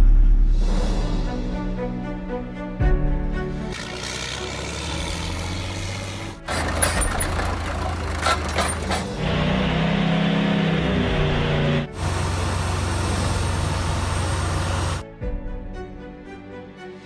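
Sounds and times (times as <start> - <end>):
diesel dozer engines running: 3.8 - 15.0
sharp metal clanks: 6.5 - 9.1.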